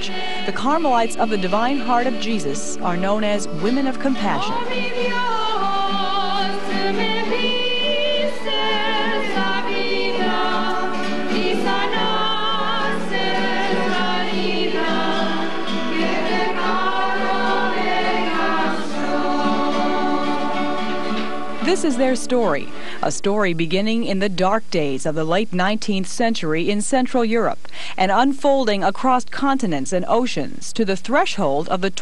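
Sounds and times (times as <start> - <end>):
choir singing held chords: 0.0 - 23.0.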